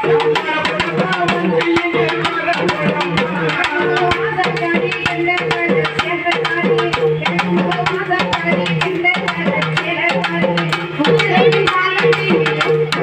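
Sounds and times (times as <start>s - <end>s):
man singing into microphone: 0.0s - 5.1s
barrel drum beaten with stick: 0.0s - 13.0s.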